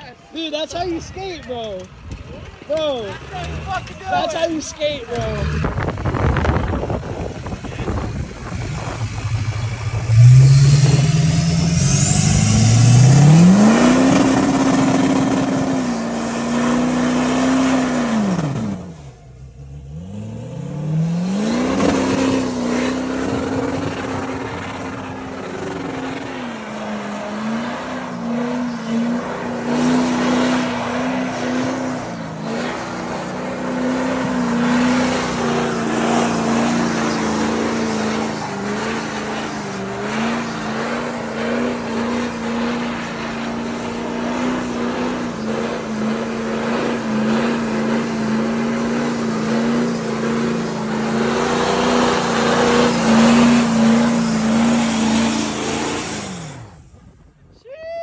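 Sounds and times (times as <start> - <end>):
pickup engine revving: 2.8 - 57.2.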